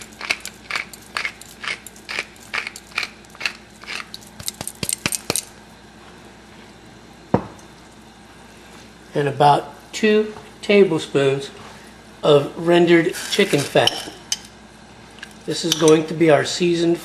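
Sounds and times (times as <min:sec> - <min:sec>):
pepper mill grinding: 0:00.0 - 0:05.5.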